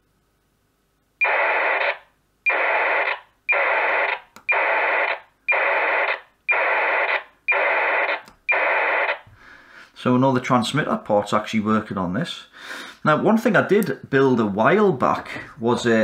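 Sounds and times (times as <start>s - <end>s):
radio telemetry data bursts: 1.2s - 9.2s.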